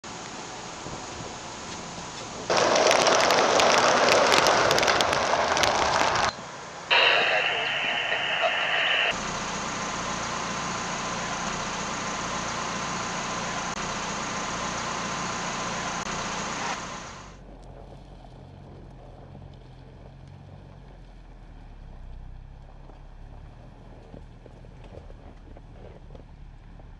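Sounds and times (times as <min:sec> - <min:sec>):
loud hiss of noise: 0:00.1 - 0:17.4
car engine running: 0:00.5 - 0:26.9.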